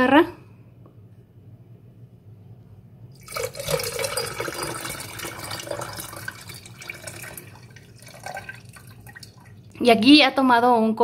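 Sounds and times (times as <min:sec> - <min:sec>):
liquid pouring and splashing: 0:03.2 - 0:09.8.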